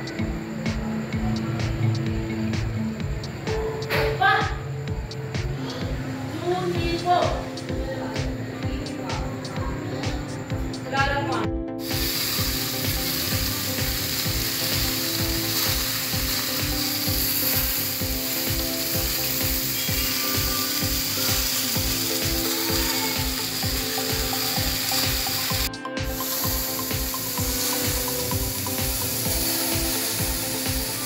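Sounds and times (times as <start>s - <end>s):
steady low beat: 0.0s - 3.6s, 6.8s - 19.6s
chicken sizzling on a grill: 11.8s - 31.0s.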